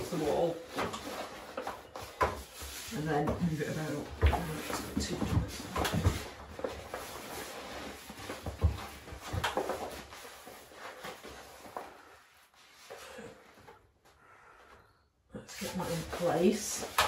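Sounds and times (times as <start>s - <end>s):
paper rustling and crinkling: 3.6s - 13.0s.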